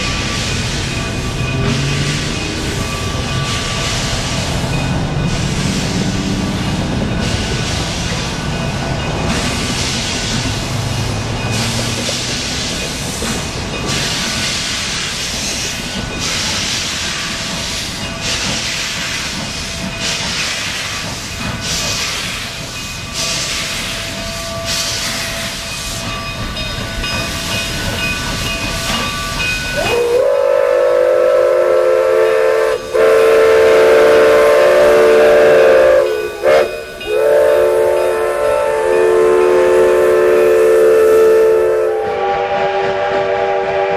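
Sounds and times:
steam locomotive hissing and chuffing: 0.0 - 43.9
steam whistle blowing: 29.8 - 43.9.

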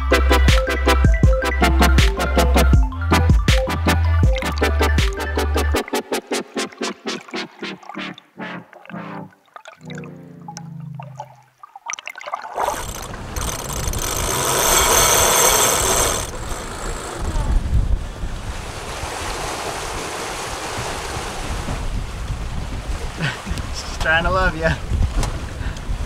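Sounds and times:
water rushing past hull: 4.2 - 26.0
wind buffeting microphone: 12.9 - 26.0.

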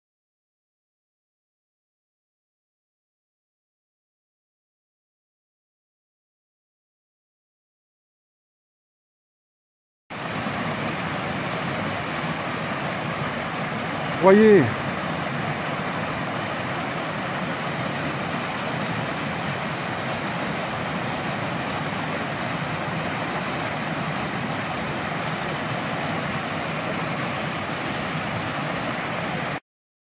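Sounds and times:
whitewater rushing over boulders: 10.1 - 29.6.

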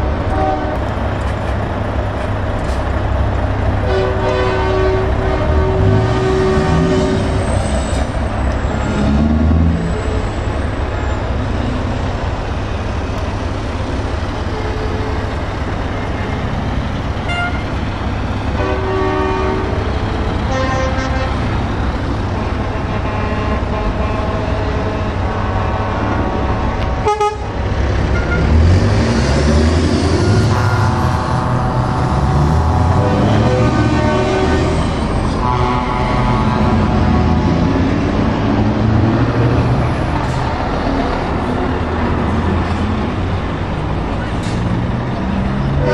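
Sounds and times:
truck engine revving: 0.0 - 14.4, 19.5 - 45.9
truck diesel engines running: 0.0 - 45.9
truck horn blasts: 0.3 - 1.0, 3.8 - 7.6, 17.2 - 17.8, 18.5 - 21.6, 22.3 - 28.6, 30.1 - 37.7.

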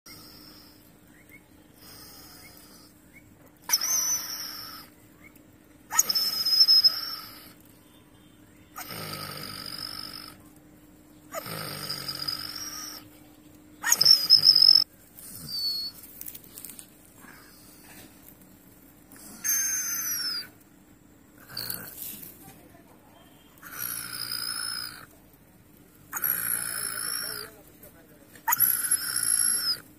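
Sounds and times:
dog whining in distress: 3.7 - 4.9, 5.9 - 7.5, 11.3 - 13.1, 13.8 - 14.8, 15.4 - 16.0, 19.2 - 20.6, 28.5 - 29.9.

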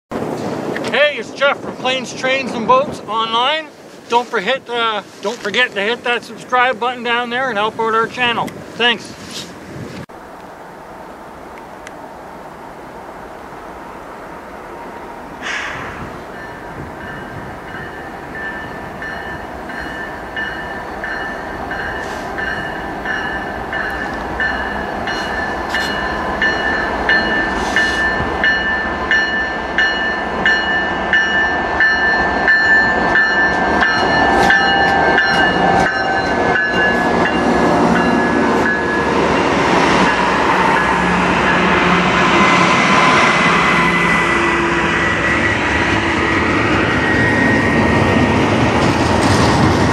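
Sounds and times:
diesel locomotives passing: 0.1 - 49.9
freight cars rumbling on rails: 0.1 - 49.9
train bell ringing: 16.3 - 41.8.

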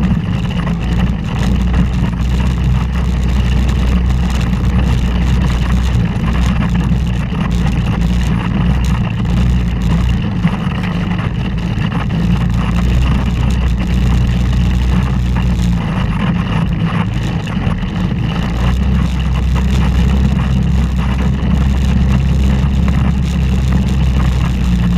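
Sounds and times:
utility vehicle engine running: 0.0 - 24.9.

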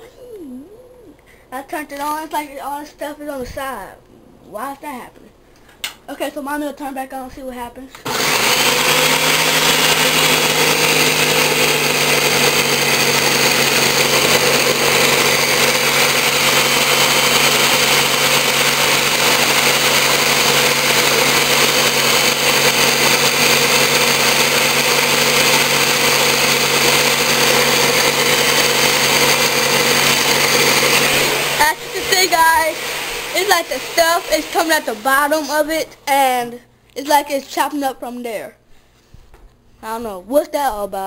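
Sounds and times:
blender chopping frozen fruit: 8.1 - 35.6.

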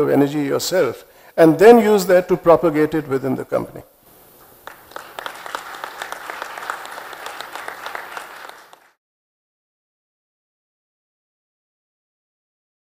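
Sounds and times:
audience applauding: 4.6 - 9.0.

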